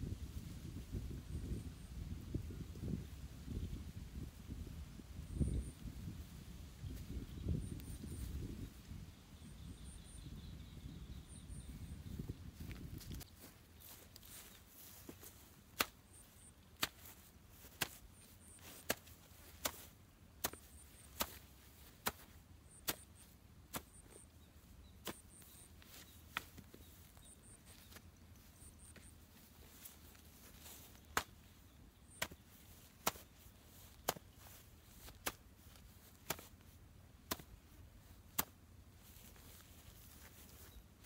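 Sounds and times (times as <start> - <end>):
hoe chopping into turf: 13.9 - 24.2, 25.0 - 28.0, 28.8 - 40.7.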